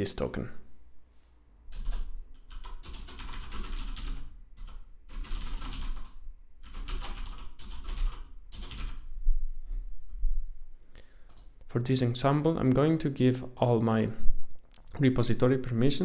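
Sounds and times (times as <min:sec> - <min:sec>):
typing on keyboard: 0:01.7 - 0:09.0.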